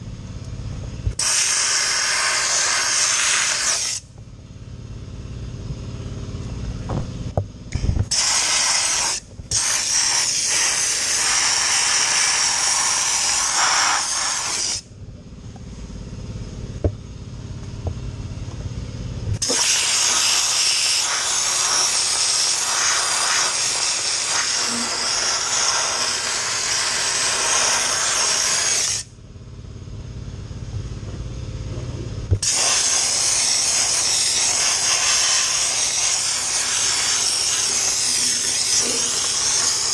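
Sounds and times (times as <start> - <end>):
low steady hum: 0.0 - 1.2, 4.0 - 8.1, 14.2 - 19.4, 29.0 - 32.4
dry ice blaster hissing: 1.1 - 4.1, 8.1 - 14.9, 19.4 - 29.1, 32.4 - 39.9.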